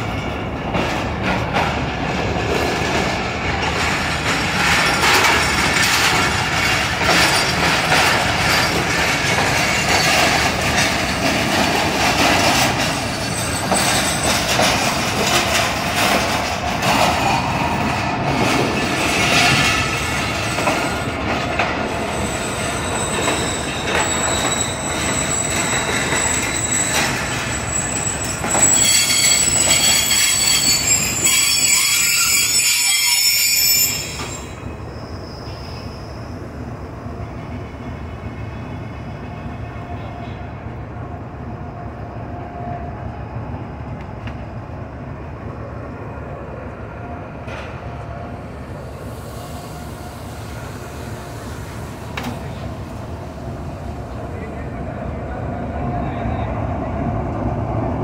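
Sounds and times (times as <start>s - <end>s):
train wheels clicking over rail joints: 0.6s - 33.0s, 51.0s - 53.0s
high thin squeal: 22.1s - 36.2s.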